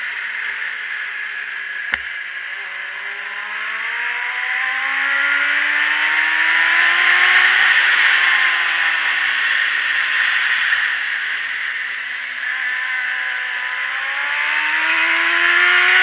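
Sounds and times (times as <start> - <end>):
sharp click: 1.9 - 2.1
motorcycle engine accelerating: 11.6 - 16.0.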